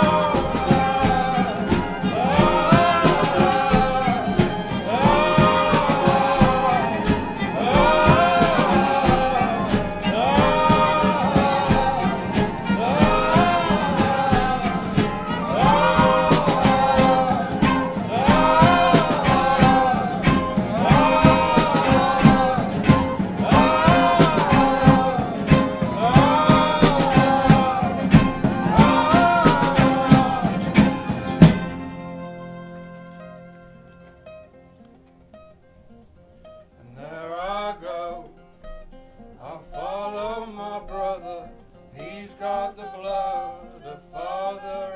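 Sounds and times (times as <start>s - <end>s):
voices singing together: 0.0s - 33.7s, 39.4s - 44.9s
double bass: 0.0s - 35.0s
fiddle: 0.0s - 35.0s
cello: 0.0s - 35.5s
strummed acoustic guitars: 0.0s - 44.9s.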